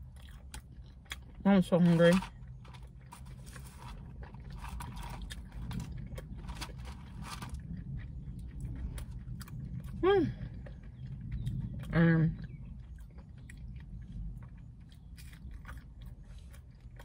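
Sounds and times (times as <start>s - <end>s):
person chewing fries: 0.0s - 17.0s
steady low hum: 0.0s - 17.0s.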